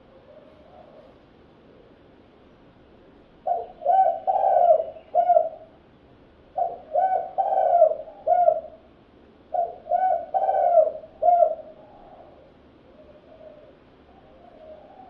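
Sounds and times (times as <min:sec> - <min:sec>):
dove cooing: 0:00.0 - 0:01.9, 0:03.4 - 0:05.8, 0:06.6 - 0:08.9, 0:09.5 - 0:15.0.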